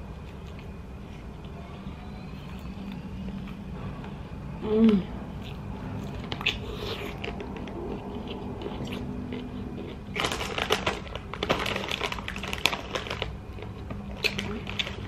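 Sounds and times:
crunchy bite and chewing: 5.4s - 15.0s
chip bag crinkling: 9.4s - 15.0s.

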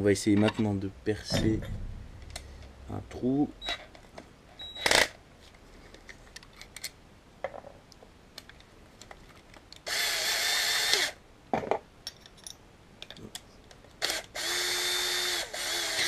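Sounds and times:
cordless drill motor whine: 14.0s - 16.0s.

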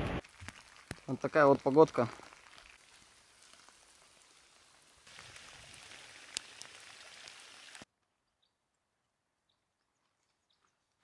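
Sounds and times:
rain falling: 0.0s - 7.8s.

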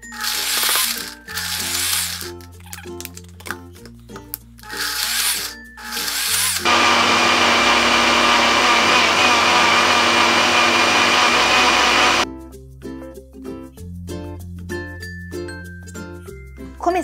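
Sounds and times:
blender motor whirring: 0.1s - 2.2s, 4.7s - 12.2s
light background music: 12.3s - 17.0s.

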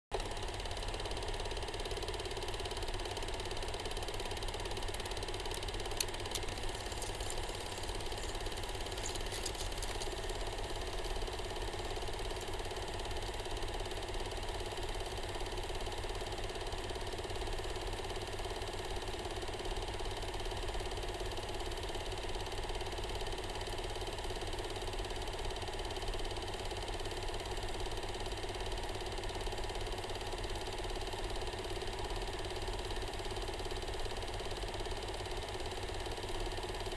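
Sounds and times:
film projector whirring: 0.1s - 36.9s
faint clicks: 5.5s - 12.6s.

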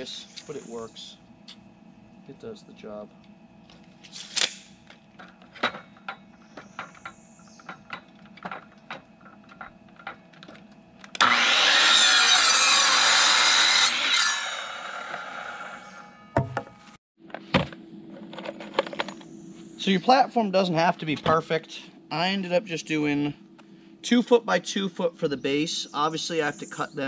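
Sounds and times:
miter saw cutting wood: 11.1s - 16.2s.

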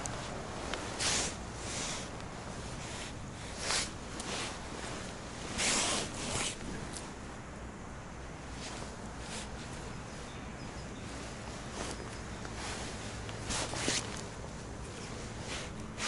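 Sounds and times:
jacket sleeve fabric swishing: 0.2s - 6.8s, 11.1s - 14.4s, 15.1s - 16.0s.

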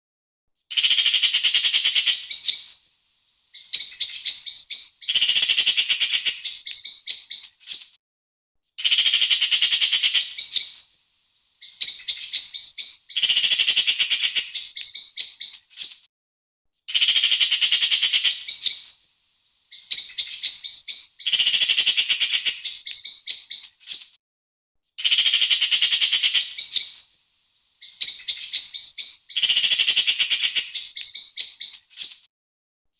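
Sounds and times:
magpie chattering: 0.7s - 2.8s, 3.6s - 7.8s, 8.8s - 10.8s, 11.6s - 15.9s, 16.9s - 18.9s, 19.7s - 24.0s, 25.0s - 27.1s, 27.8s - 32.1s.

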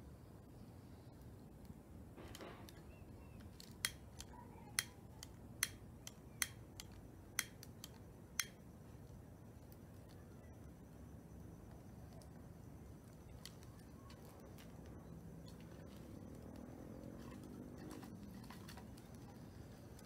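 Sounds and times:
lighter clicking: 3.6s - 8.6s.

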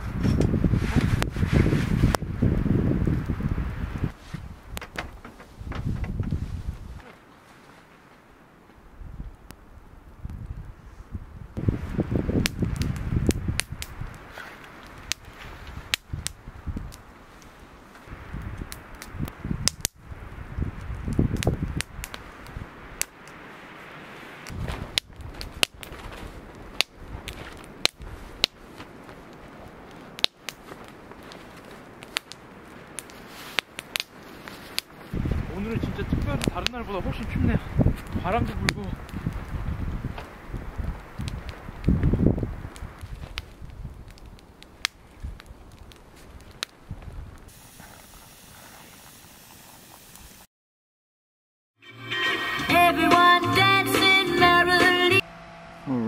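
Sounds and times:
campfire crackling and popping: 0.0s - 50.5s
fire hissing: 0.0s - 50.5s
footsteps crunching snow: 24.5s - 31.9s, 33.1s - 35.3s
steady hiss: 47.5s - 50.5s.

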